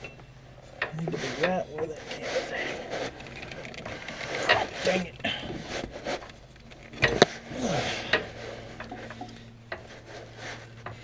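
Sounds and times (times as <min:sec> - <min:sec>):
belt scraping on pulley: 0:00.8 - 0:11.0.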